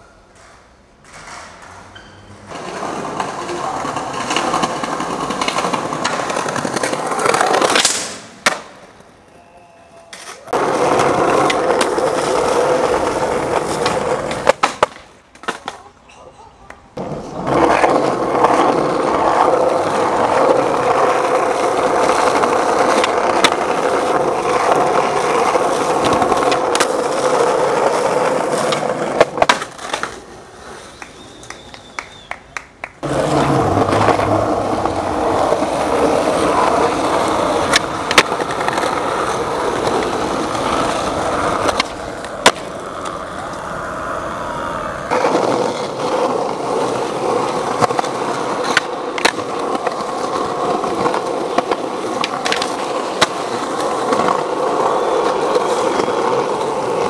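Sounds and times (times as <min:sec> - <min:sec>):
skateboard wheels rolling on pavement: 0:00.0 - 0:16.0, 0:16.7 - 0:57.0
skateboard clacking on ground: 0:00.1 - 0:09.1, 0:09.9 - 0:44.0, 0:45.1 - 0:57.0.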